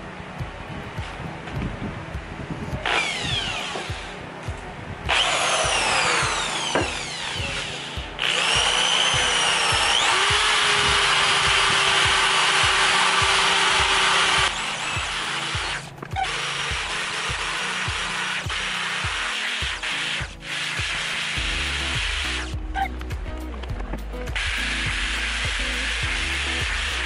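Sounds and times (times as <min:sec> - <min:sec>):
background music with steady beat: 0:00.0 - 0:27.0
drill wire brush scrubbing metal: 0:05.1 - 0:22.6, 0:24.3 - 0:27.0.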